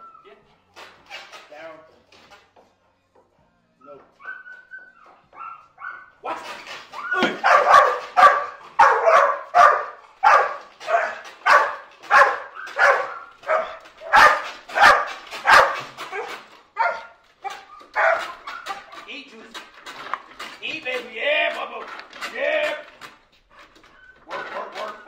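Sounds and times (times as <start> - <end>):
dog whining: 4.1 - 19.0, 23.5 - 25.0
dog barking: 4.2 - 19.0.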